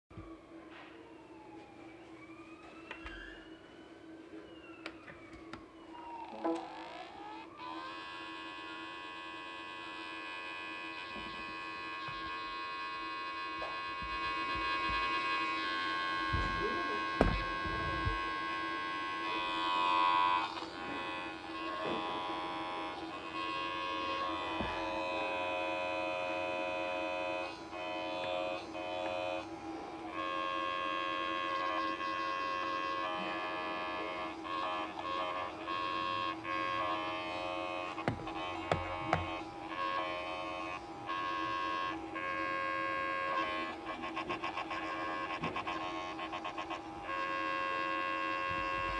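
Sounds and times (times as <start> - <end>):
hard drive humming: 0.1 - 48.9
high-pitched drive whine: 0.1 - 48.9
hard drive clicking: 30.8 - 41.8.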